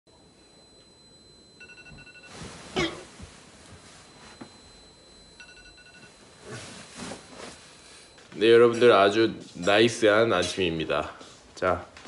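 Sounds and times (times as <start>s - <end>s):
electronic alarm beeping: 0.1s - 2.6s, 3.7s - 9.2s
bedding rustling: 1.6s - 8.9s
person coughing: 2.7s - 3.2s.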